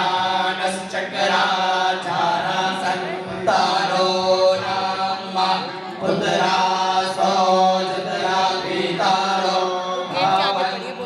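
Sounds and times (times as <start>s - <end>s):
priests chanting: 0.0s - 11.0s.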